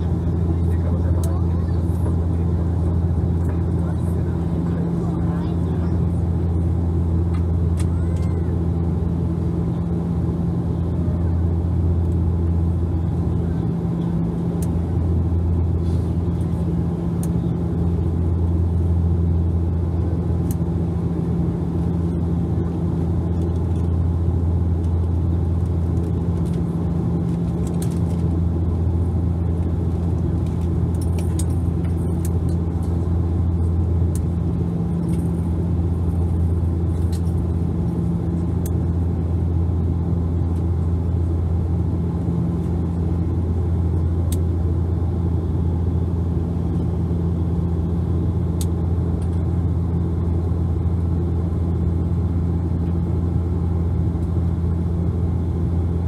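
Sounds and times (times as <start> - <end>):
propeller drone: 0.0 - 56.0
rush of air in cabin: 12.8 - 18.4.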